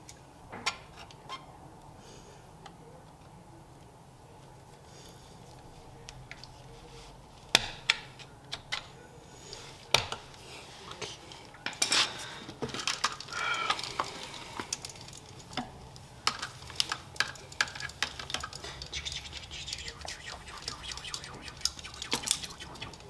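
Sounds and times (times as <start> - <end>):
wires rustling: 3.0 - 23.0.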